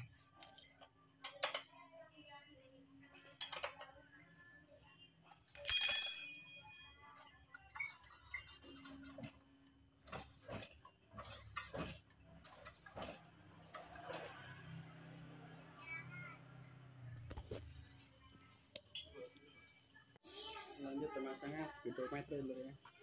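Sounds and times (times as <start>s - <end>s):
tools clicking and rattling: 5.5s - 9.3s
metal tool clanging on metal: 7.5s - 9.3s.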